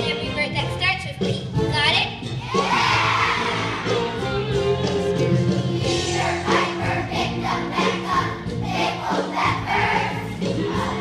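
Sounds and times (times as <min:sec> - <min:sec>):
backing music: 0:00.0 - 0:11.0
young children singing: 0:02.4 - 0:11.0.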